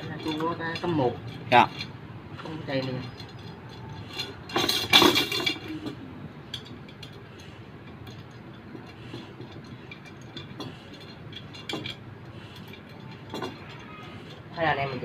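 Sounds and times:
metal spokes clinking: 0:00.0 - 0:15.0.

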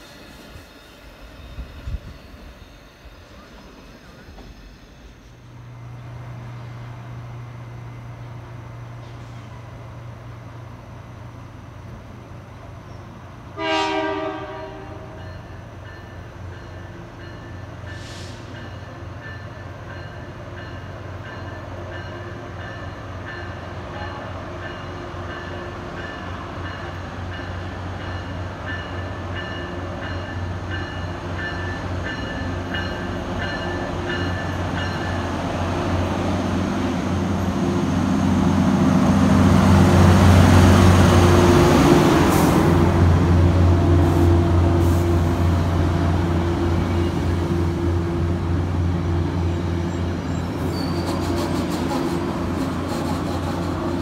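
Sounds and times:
diesel locomotive engine rumble: 0:00.0 - 0:54.0
train horn blast: 0:13.5 - 0:15.2.

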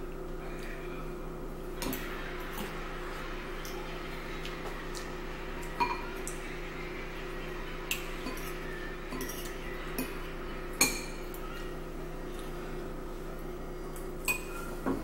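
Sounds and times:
steady low hum: 0:00.0 - 0:15.0
forks clinking against bowls: 0:05.8 - 0:06.4, 0:07.9 - 0:10.2, 0:10.8 - 0:11.4, 0:14.0 - 0:14.7.

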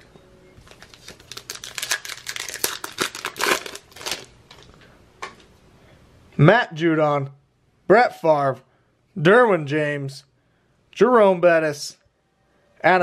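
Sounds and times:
wrapper crinkling and ripping: 0:00.6 - 0:04.7.

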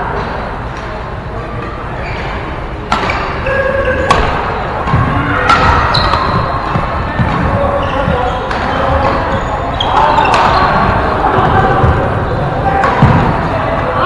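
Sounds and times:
rackets hitting shuttlecock: 0:02.8 - 0:11.9, 0:12.7 - 0:13.8
shoe squeaks on court floor: 0:05.5 - 0:06.7, 0:07.5 - 0:10.8.

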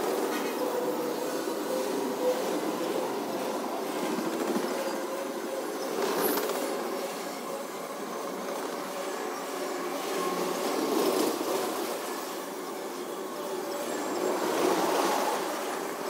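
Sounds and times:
wheel squeal: 0:00.0 - 0:07.5
freight train rolling past: 0:00.0 - 0:16.0.

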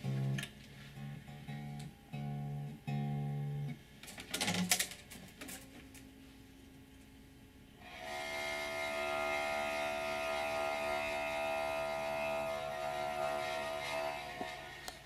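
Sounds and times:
sustained musical drone: 0:00.0 - 0:03.8, 0:07.8 - 0:15.0.

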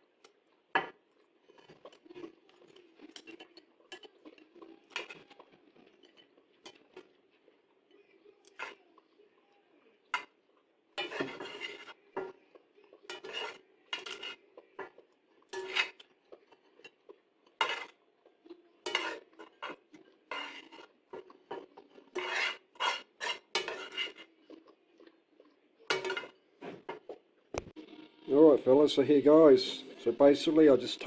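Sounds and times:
metal tongs scraping a pan: 0:03.1 - 0:07.1, 0:08.4 - 0:08.8, 0:10.1 - 0:10.4, 0:11.0 - 0:12.4, 0:13.0 - 0:18.0, 0:18.8 - 0:24.3, 0:25.9 - 0:27.0.

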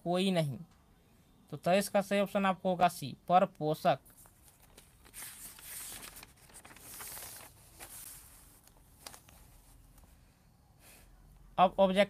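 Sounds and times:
paper page turning: 0:04.1 - 0:09.7.

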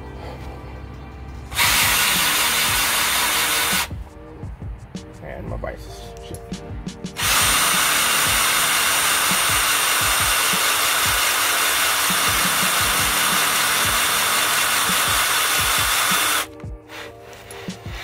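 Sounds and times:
electric drill grinding: 0:01.5 - 0:04.0, 0:07.2 - 0:18.0.

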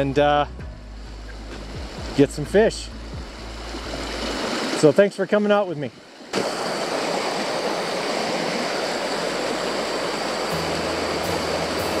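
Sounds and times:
background music low notes: 0:00.0 - 0:04.6, 0:10.4 - 0:12.0
creek running over rocks: 0:01.0 - 0:12.0.

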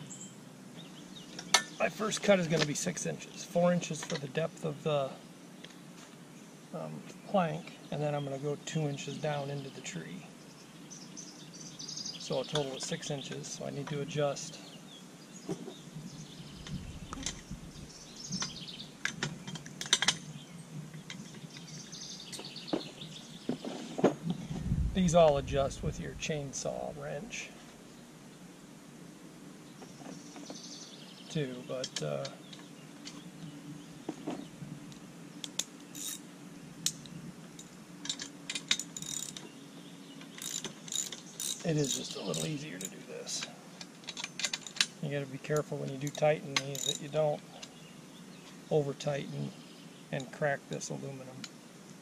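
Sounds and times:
birds chirping: 0:00.0 - 0:52.0
ratchet wrench clicking: 0:38.1 - 0:39.4, 0:40.4 - 0:42.9, 0:46.1 - 0:47.0
hand tool clicking on metal: 0:45.6 - 0:47.1.

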